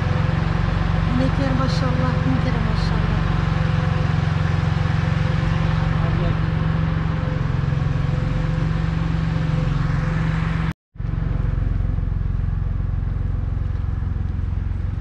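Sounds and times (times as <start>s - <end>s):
engine humming steadily: 0.0s - 15.0s.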